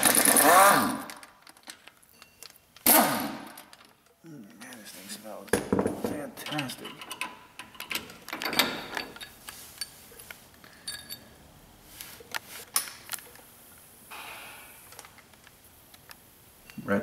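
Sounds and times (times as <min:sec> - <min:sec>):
metal tools clinking: 0:01.1 - 0:02.7, 0:05.5 - 0:11.4
short ringing clink: 0:10.8 - 0:11.3.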